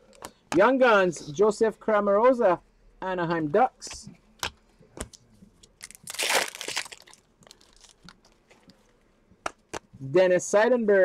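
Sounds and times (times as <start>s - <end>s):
foil wrappers crinkling: 5.8s - 8.4s.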